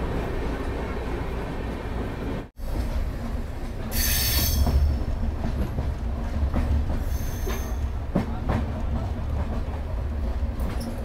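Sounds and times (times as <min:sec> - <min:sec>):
train rumbling: 0:00.0 - 0:11.0
wheels clacking over rail joints: 0:02.6 - 0:11.0.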